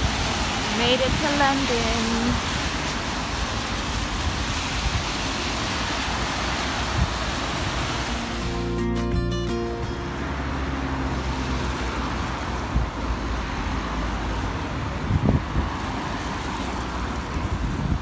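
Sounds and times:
cars driving past: 0.0 - 18.0.

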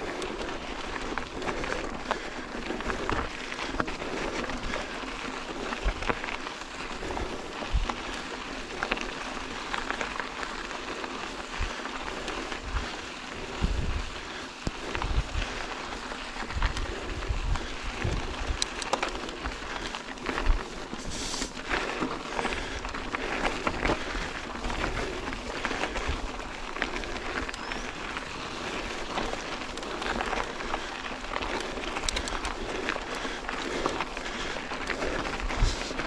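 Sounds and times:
bike clicks and rattles: 0.0 - 36.0
tyres crackling over gravel: 0.0 - 36.0
wind rumble on microphone: 11.5 - 21.2, 35.2 - 36.0.

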